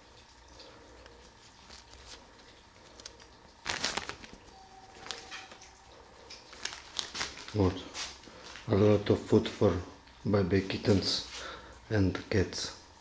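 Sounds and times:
paper receipt rustling: 1.3s - 9.0s.

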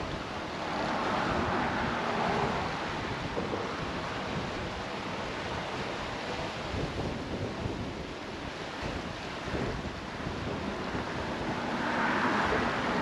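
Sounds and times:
choppy sea water: 0.0s - 13.0s
wind on microphone: 0.0s - 13.0s.

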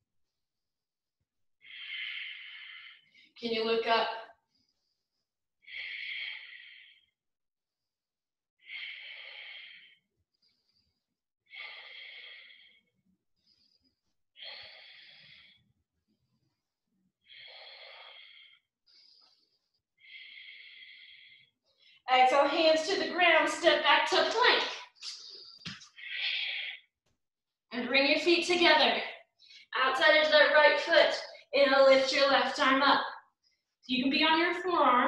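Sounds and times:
woman breathing slowly: 1.6s - 3.4s, 4.4s - 7.2s, 8.6s - 22.1s, 24.5s - 26.9s.

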